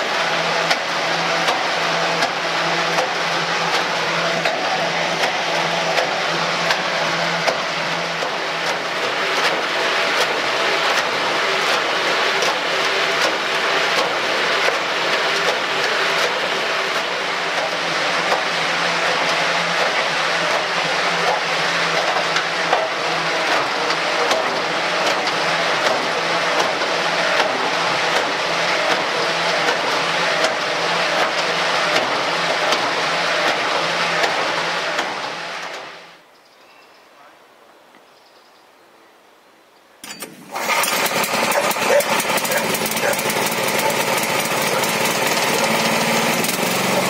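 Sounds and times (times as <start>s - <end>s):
machine engine running: 0.0s - 36.2s, 40.0s - 47.0s
knocks and clatter: 0.2s - 36.0s.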